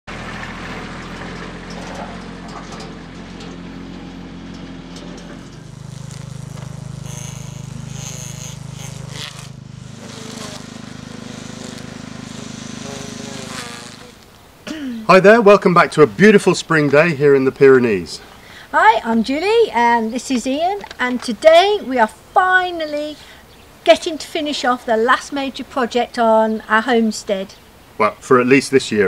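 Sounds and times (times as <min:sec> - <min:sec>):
small engines running: 0:00.1 - 0:14.5.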